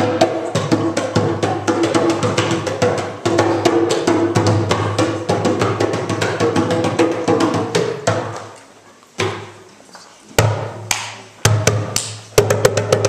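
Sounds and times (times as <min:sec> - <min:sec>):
hand drums playing fast rhythm: 0:00.0 - 0:08.4, 0:11.5 - 0:13.0.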